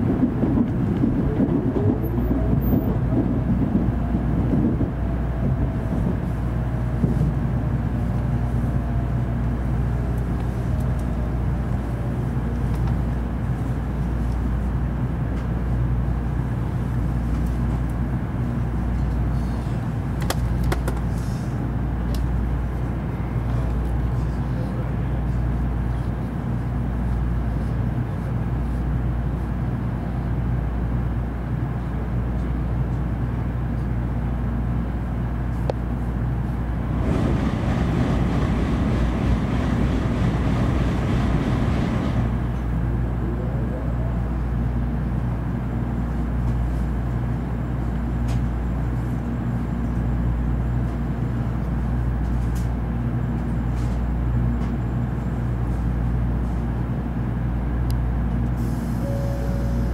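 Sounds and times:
train interior hum: 0:00.0 - 0:59.9
train rushing past: 0:36.4 - 0:44.3.

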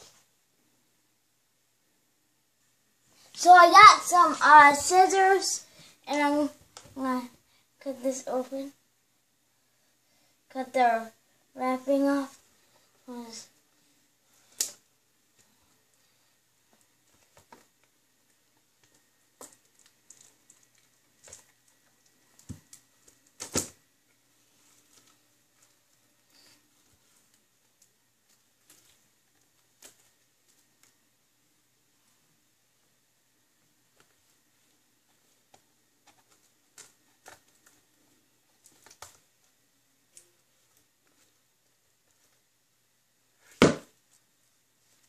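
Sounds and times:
plastic wrap crinkling: 0:18.8 - 0:23.8.

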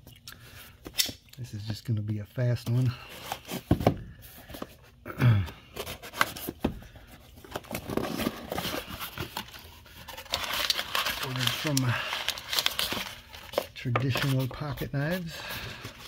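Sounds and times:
paper packing rustling: 0:05.7 - 0:16.0.

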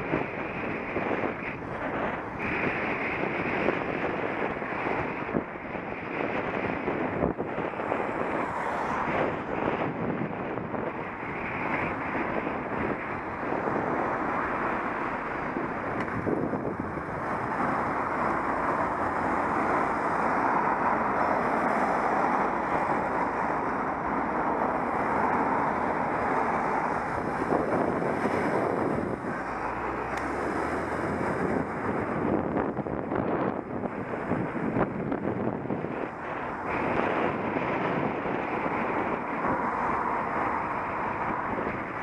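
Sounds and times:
traffic noise: 0:00.0 - 0:42.0
wind rushing over microphone: 0:00.0 - 0:42.0.

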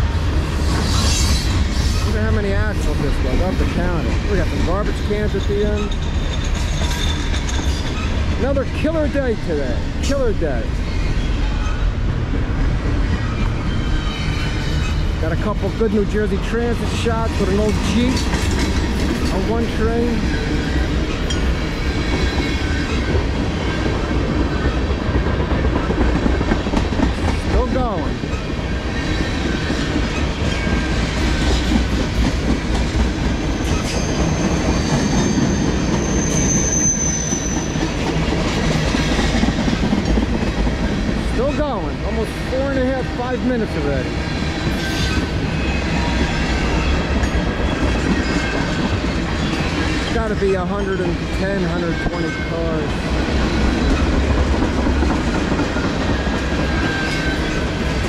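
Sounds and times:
train wheels rumbling and clacking: 0:00.0 - 0:58.0
high wheel squeal: 0:33.5 - 0:38.0.

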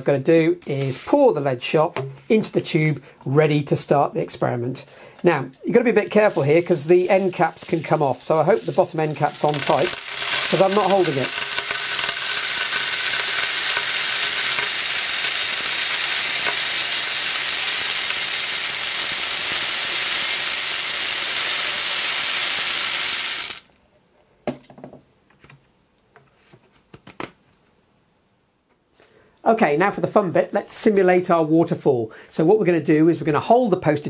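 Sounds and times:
lead shot pouring into a tube: 0:07.0 - 0:23.7.

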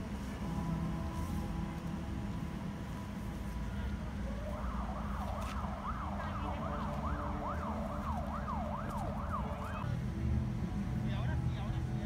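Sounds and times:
siren yelping: 0:03.6 - 0:09.9.

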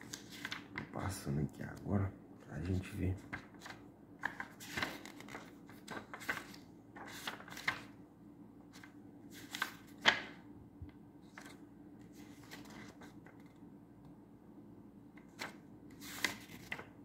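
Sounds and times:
pages rustling and flipping: 0:00.0 - 0:01.1, 0:03.1 - 0:08.0, 0:08.6 - 0:13.7, 0:15.2 - 0:17.0.

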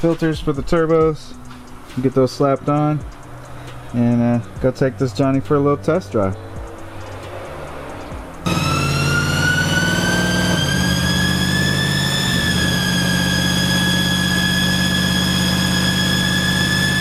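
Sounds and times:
engine low drone: 0:03.0 - 0:17.0
turbo whistle: 0:08.5 - 0:17.0.

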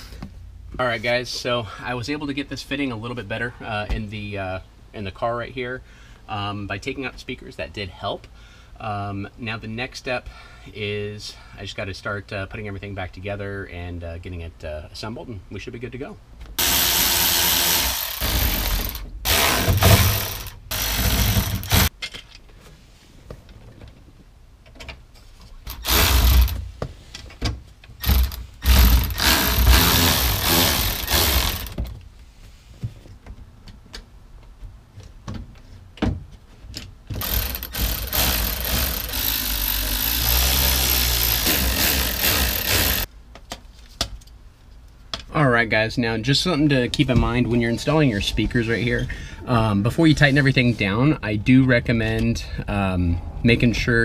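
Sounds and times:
electric ratchet driving screws: 0:16.6 - 0:21.9, 0:25.7 - 0:26.6, 0:28.0 - 0:31.9, 0:37.1 - 0:43.1.

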